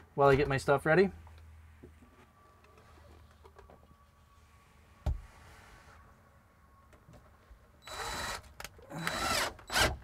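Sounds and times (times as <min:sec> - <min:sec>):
cordless drill whirring: 0:07.8 - 0:10.0.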